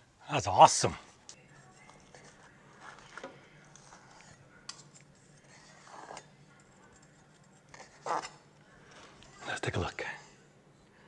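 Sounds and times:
knife scraping on cutting board: 2.8s - 6.3s, 7.3s - 8.4s.

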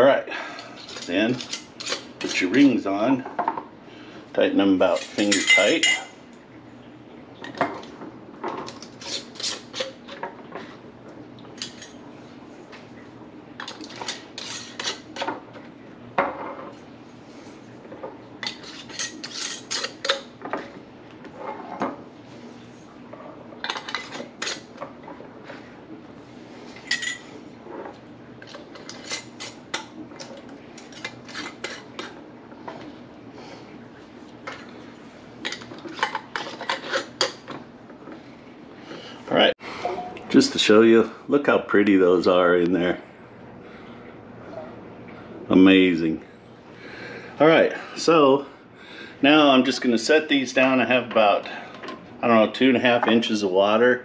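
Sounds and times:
glass jars clinking: 5.0s - 6.1s.

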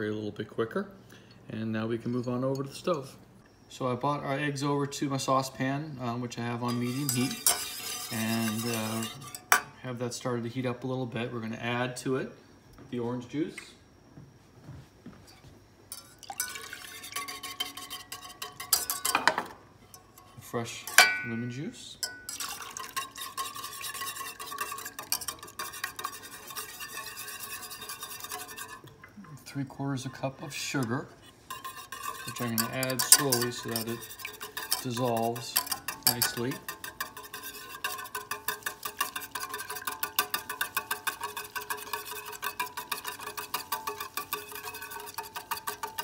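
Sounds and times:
whisk clicking against metal pan: 6.6s - 9.6s, 16.0s - 20.0s, 22.0s - 29.1s, 30.6s - 46.0s.

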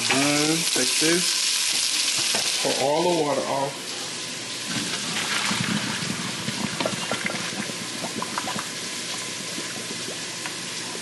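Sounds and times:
water pouring from a pot: 4.6s - 10.3s.

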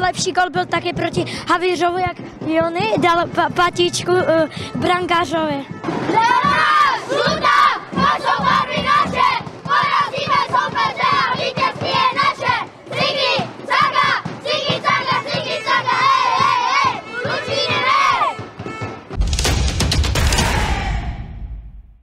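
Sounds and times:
boys shouting a chanted cheer: 6.0s - 18.5s.

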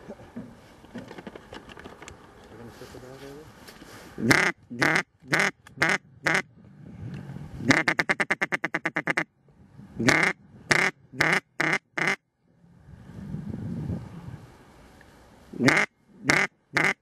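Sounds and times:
duck quacking: 4.2s - 6.5s, 7.7s - 9.3s, 10.0s - 12.2s, 15.6s - 17.0s.

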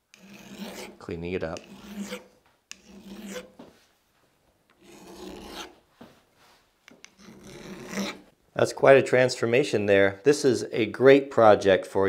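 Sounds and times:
file rasping on steel: 0.1s - 1.0s, 1.6s - 3.6s, 4.8s - 5.8s, 7.0s - 8.3s.

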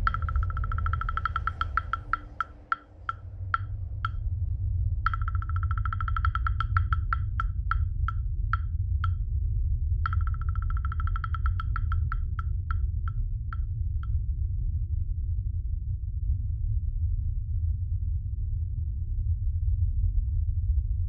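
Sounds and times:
hollow wood-block-like knocks: 0.0s - 4.2s, 5.1s - 9.2s, 10.1s - 13.6s
steady low rumble: 0.0s - 21.0s.

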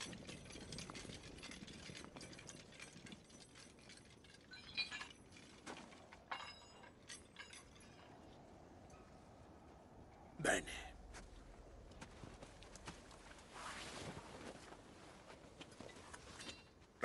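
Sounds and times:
metallic clinks and rattles: 0.0s - 9.4s, 14.5s - 16.9s.

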